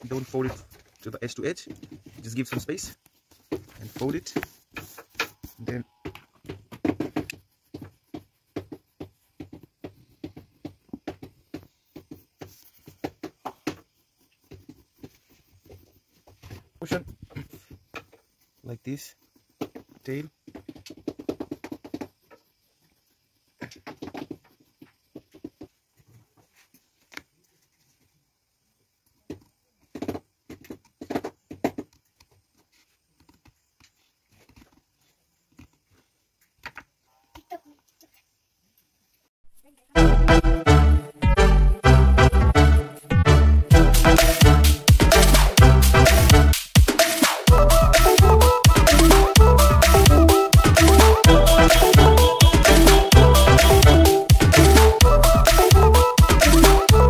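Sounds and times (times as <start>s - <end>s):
pencil scratching on paper: 6.8s - 10.4s, 13.6s - 16.2s, 50.8s - 56.8s.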